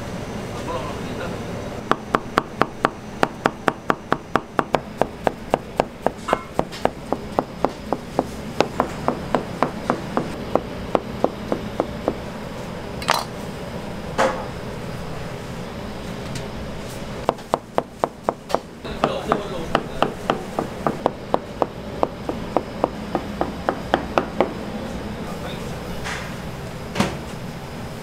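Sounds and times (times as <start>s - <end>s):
knife chopping on cutting board: 1.9s - 10.4s, 17.3s - 24.5s.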